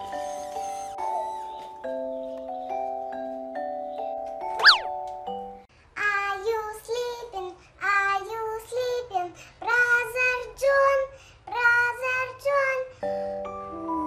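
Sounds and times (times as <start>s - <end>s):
girl singing: 6.0s - 12.9s.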